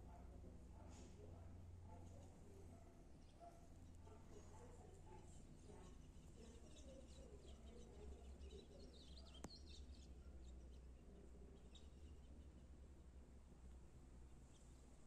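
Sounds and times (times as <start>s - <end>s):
steady low hum: 0.0s - 15.0s
faint high chirps: 5.8s - 12.5s.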